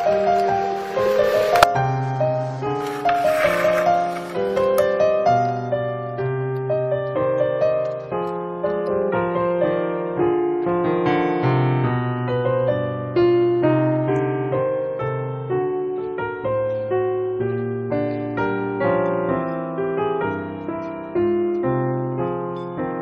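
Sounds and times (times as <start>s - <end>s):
gentle piano music: 0.0s - 23.0s.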